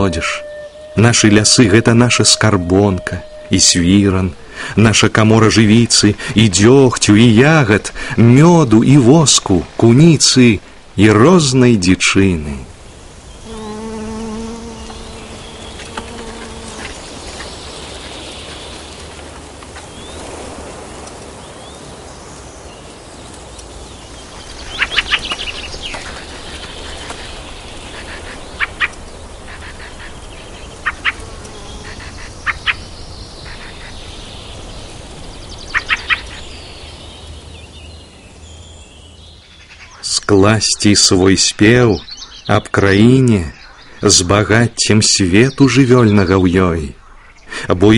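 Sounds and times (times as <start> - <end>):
steady hiss: 0.0 - 39.2
insect-like buzzing: 13.1 - 18.0, 30.9 - 32.3.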